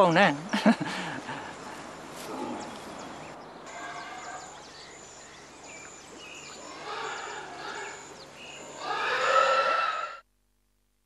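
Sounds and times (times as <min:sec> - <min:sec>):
small birds chirping: 0:00.0 - 0:09.5
pig squealing: 0:06.6 - 0:10.2.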